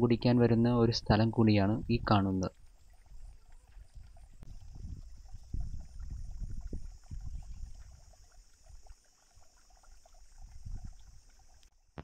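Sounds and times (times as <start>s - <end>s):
wind buffeting microphone: 0.8s - 8.9s, 10.3s - 11.4s.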